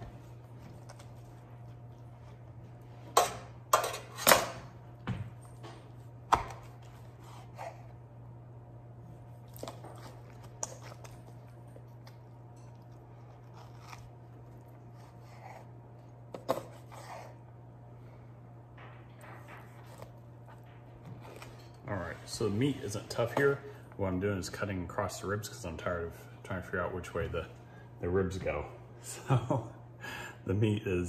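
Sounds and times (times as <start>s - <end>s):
knife slicing and crunching: 12.0s - 15.7s.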